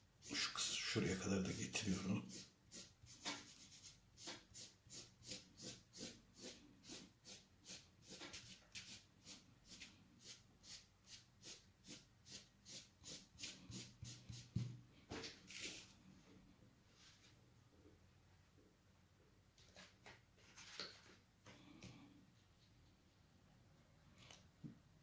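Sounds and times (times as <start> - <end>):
cotton blender rubbing on paper: 1.4 - 14.5.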